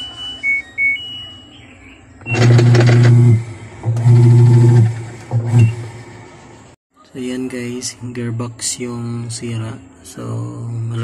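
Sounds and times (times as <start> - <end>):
control panel beeps: 0.0 - 3.4
washing machine agitation hum and rattle: 2.3 - 6.6.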